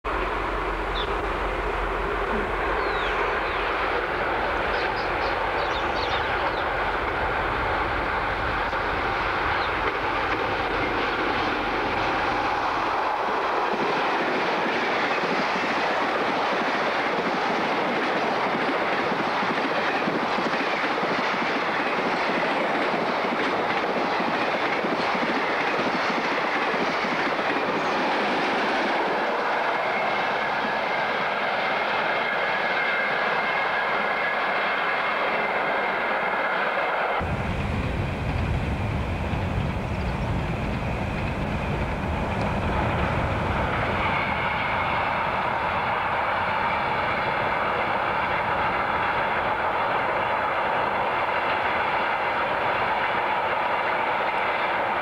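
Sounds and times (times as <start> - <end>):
diesel locomotive engine rumble: 0.1 - 17.2, 37.2 - 55.0.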